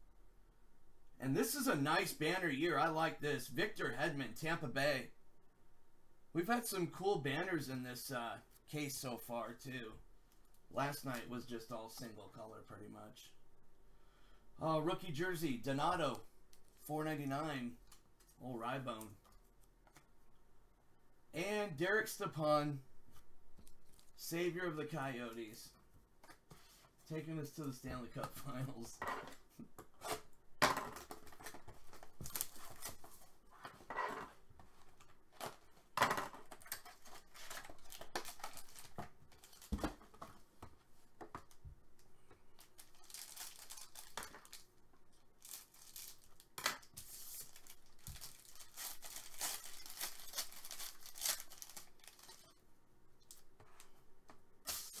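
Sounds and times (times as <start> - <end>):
foil wrapper tearing and crinkling: 42.6 - 44.7, 45.4 - 52.4.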